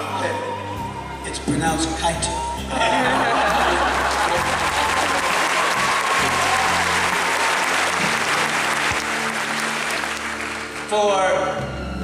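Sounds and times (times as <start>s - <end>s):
audience applauding: 3.3s - 10.9s.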